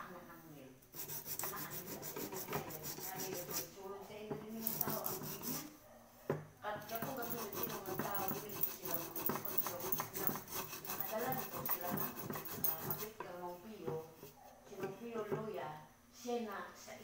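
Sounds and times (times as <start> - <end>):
abrasive scraping metal pot: 1.0 - 5.7, 6.8 - 15.5.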